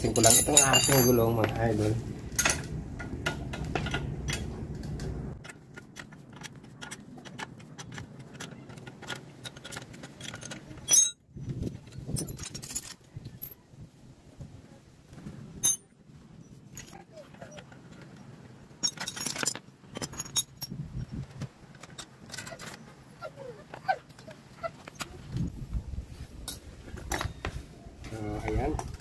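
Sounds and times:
low hum: 0.0 - 6.5.

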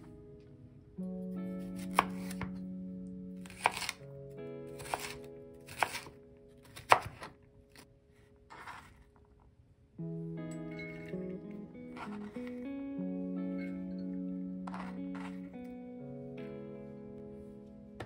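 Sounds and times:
soft background music: 0.0 - 18.0
knife cutting carrots: 1.7 - 2.6, 3.4 - 4.0, 4.8 - 7.9, 8.5 - 9.0, 11.9 - 12.6, 14.7 - 15.5.

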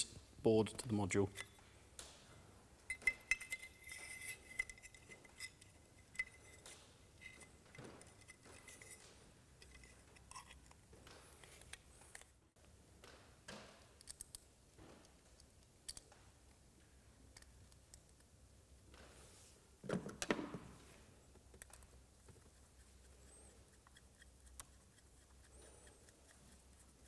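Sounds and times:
scrape and knock: 6.2 - 10.6.

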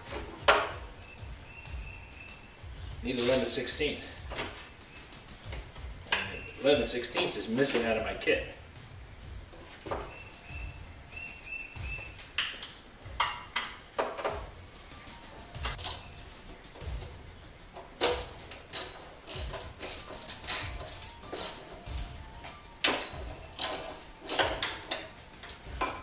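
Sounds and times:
socket wrench ratcheting: 18.0 - 21.8, 22.9 - 25.2
metal parts clinking: 18.0 - 22.1, 22.8 - 26.0.

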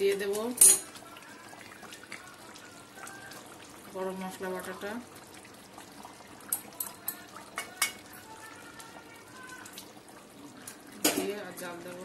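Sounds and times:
steel bowl clinking against pan: 0.6 - 0.9.

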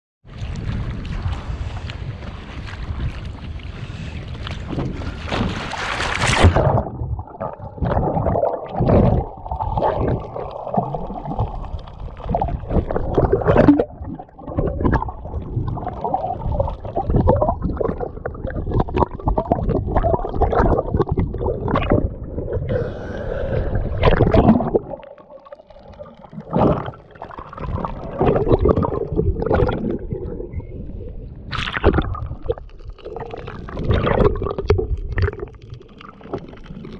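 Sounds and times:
water sloshing and splashing: 0.2 - 36.9
wind on microphone: 0.3 - 10.4
muffled underwater gurgling: 6.3 - 36.9.

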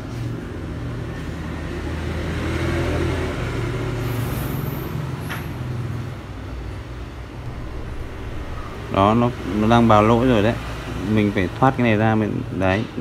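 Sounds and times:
low rumble: 7.4 - 11.4.

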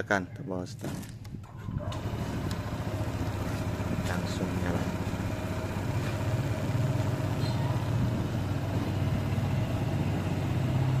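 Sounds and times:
scooter engine idling: 1.6 - 11.0.

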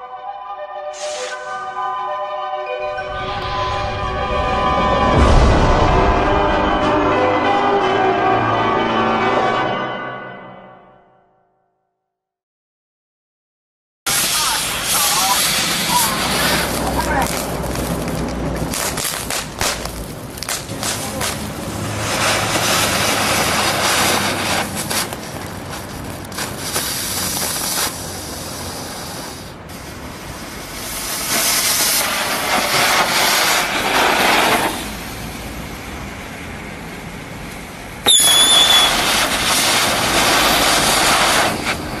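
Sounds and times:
fireworks hissing: 1.0 - 1.6, 14.1 - 35.6, 38.0 - 42.0
shrill whistle: 38.1 - 39.2.

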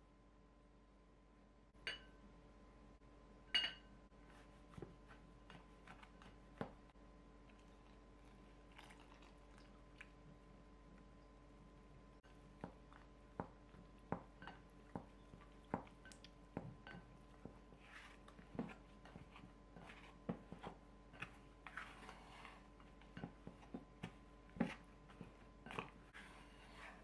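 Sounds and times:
wet dough squishing: 4.2 - 11.2.

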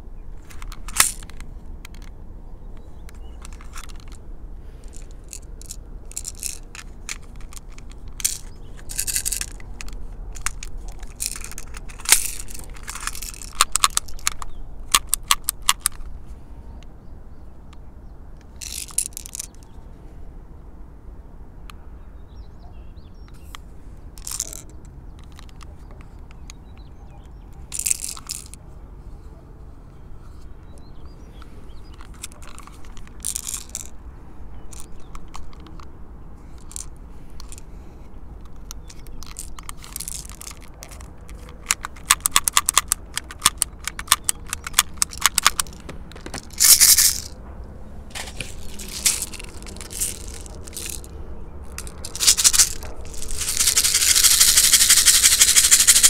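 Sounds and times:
small clicks and rattles: 0.4 - 2.2, 2.8 - 4.2, 4.8 - 16.1, 18.4 - 19.7, 24.2 - 28.6, 30.7 - 34.0, 34.6 - 35.9, 36.5 - 37.6, 38.4 - 47.4, 48.1 - 56.0.

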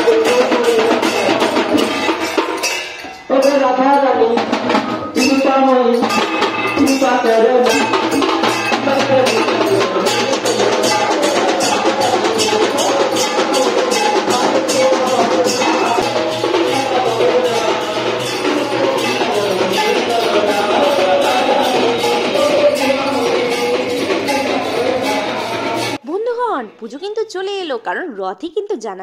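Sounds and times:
music with clacking percussion: 0.0 - 26.0.

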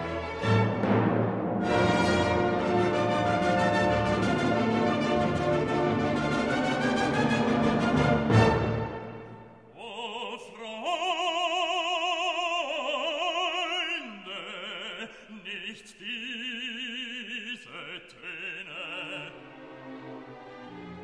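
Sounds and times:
classical music: 0.0 - 9.7, 19.0 - 21.0
operatic singing with vibrato: 6.0 - 21.0.

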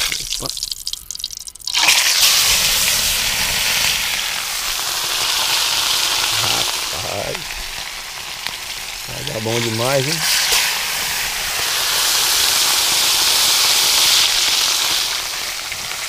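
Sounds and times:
fish sizzling in hot oil: 0.0 - 16.0.

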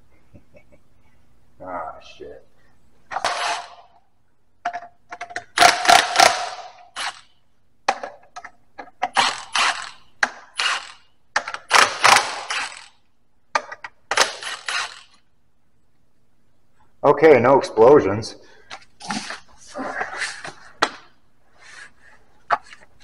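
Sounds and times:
impact driver hammering: 5.6 - 7.2, 9.0 - 12.9.

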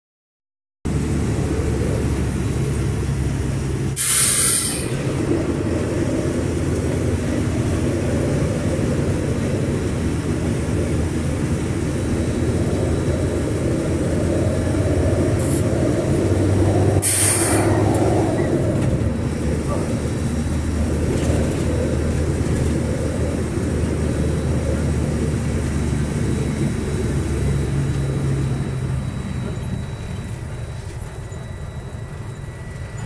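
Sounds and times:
road noise: 0.9 - 33.0
vehicle engine drone: 0.9 - 33.0
short loud hiss: 4.0 - 5.0, 17.0 - 17.6.

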